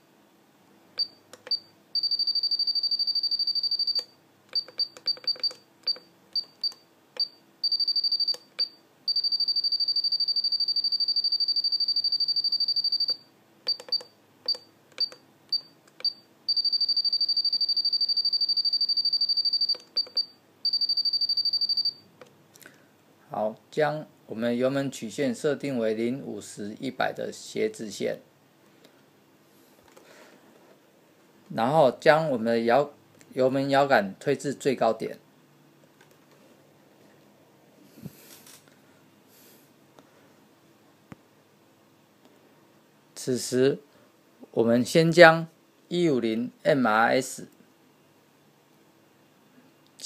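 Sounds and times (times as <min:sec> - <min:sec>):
fast repeated beeps: 0:01.0 - 0:04.0, 0:04.6 - 0:22.0
short high beeps: 0:01.0 - 0:04.0, 0:04.6 - 0:22.0.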